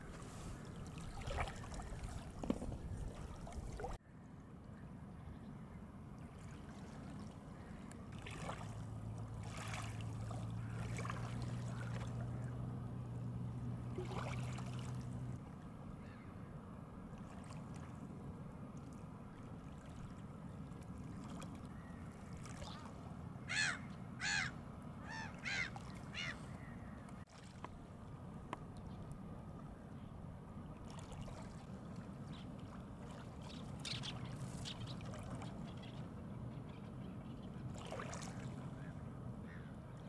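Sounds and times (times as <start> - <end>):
grebes calling: 23.5 - 26.9.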